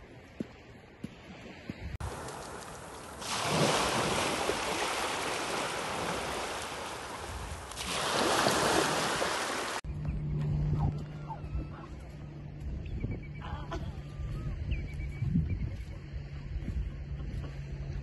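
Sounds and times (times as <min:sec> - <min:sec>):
small waves washing over sand: 0:01.2 - 0:09.8.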